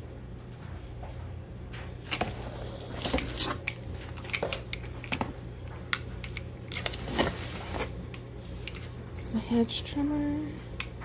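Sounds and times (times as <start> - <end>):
bubble wrap crinkling: 2.1 - 5.1, 6.7 - 9.0
cardboard box shuffling: 6.8 - 8.0.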